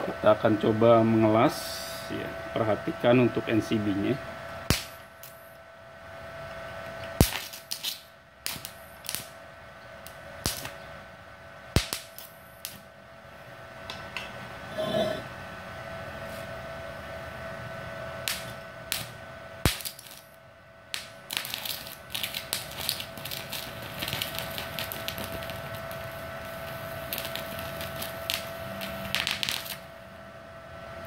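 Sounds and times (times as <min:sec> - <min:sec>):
welding arc crackling: 0:04.7 - 0:05.5, 0:07.0 - 0:09.4, 0:10.0 - 0:10.8, 0:11.7 - 0:12.9, 0:18.2 - 0:30.0
welding arc striking cracks: 0:04.7 - 0:05.5, 0:07.0 - 0:09.4, 0:10.0 - 0:10.8, 0:11.7 - 0:12.9, 0:18.2 - 0:29.9.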